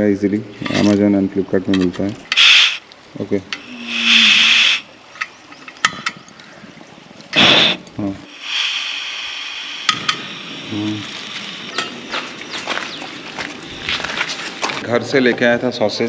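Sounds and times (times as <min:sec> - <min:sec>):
gas hissing from canister: 0:02.3 - 0:02.8, 0:03.6 - 0:04.9, 0:07.4 - 0:11.9.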